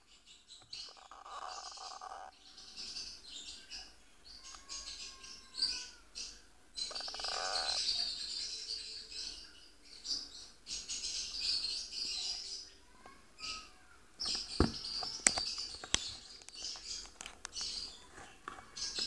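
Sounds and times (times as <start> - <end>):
parakeet chick chirping: 0.2 - 18.0
raspy buzzing bird calls: 0.9 - 2.3, 6.8 - 7.9.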